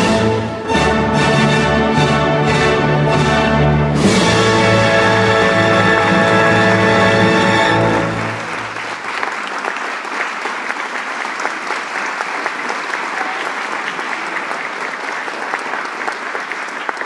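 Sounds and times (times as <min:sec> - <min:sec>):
dance music: 0:04.0 - 0:08.2
crowd applauding: 0:04.3 - 0:17.0.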